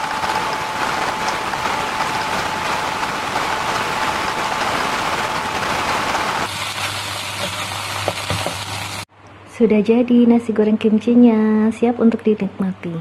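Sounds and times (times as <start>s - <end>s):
rice sizzling in wok: 5.7s - 9.1s.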